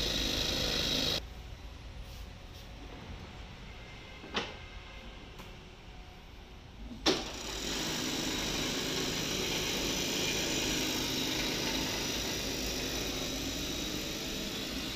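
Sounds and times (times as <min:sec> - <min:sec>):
sewing head running: 0:00.0 - 0:01.2, 0:07.3 - 0:14.9.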